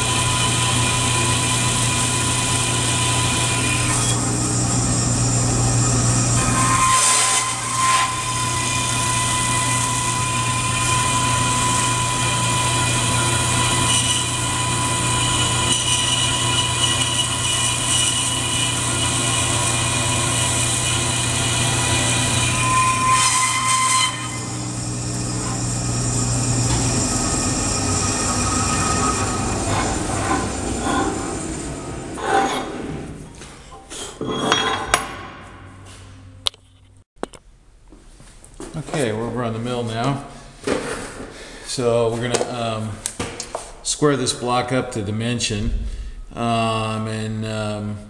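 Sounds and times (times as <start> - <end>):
bandsaw running hum: 0.0 - 33.4
saw blade whine cutting metal: 0.0 - 35.3.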